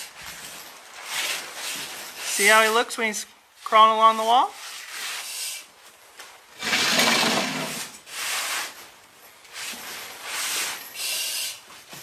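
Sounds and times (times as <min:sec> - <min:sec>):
gear scraping on wooden floor: 0:06.6 - 0:09.0
breathing through air regulator: 0:11.0 - 0:11.6.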